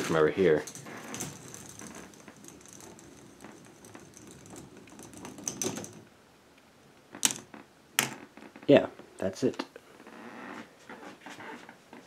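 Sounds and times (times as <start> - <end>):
plastic balls rattling down track: 0.0 - 6.1.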